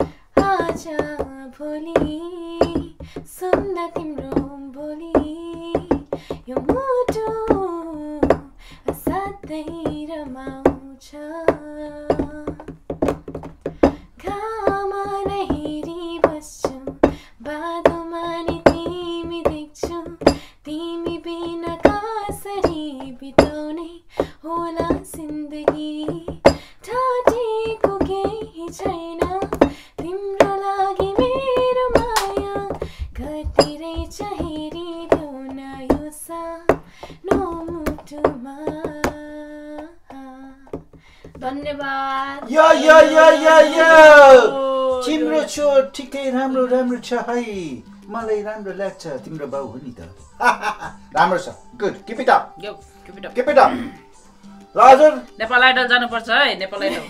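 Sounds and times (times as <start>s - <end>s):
girl singing unaccompanied: 0.0s - 12.9s, 14.1s - 45.5s.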